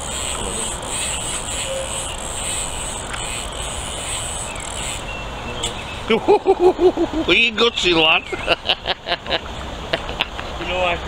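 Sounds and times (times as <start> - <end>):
fishing reel drag buzzing: 0.0 - 5.1.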